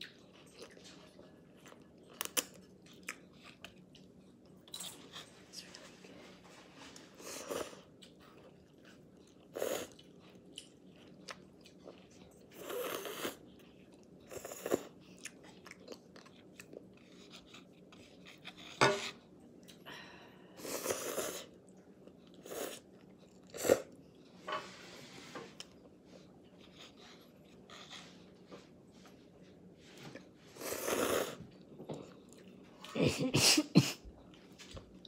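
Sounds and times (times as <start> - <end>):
noodles slurping and chewing: 7.0 - 19.2.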